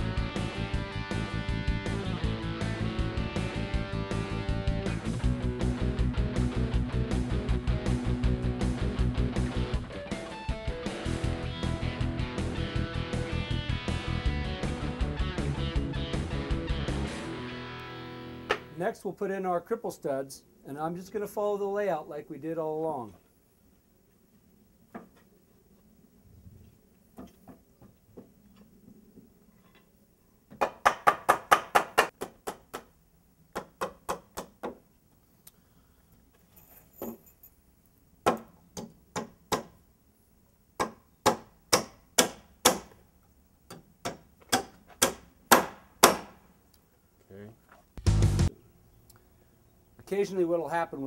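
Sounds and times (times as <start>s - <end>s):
hammer driving nails into wood: 30.5s - 32.9s, 38.2s - 39.7s, 40.8s - 43.0s, 43.7s - 46.4s.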